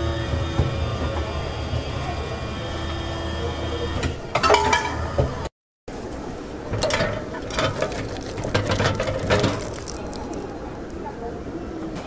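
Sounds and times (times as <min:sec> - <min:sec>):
vending machine clattering and clicking: 0:06.7 - 0:11.1
wrapped lollipops rattling: 0:07.5 - 0:11.0.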